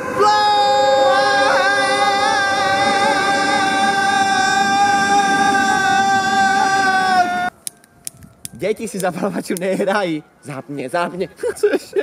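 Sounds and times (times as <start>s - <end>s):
men singing a long high note: 0.0s - 7.5s.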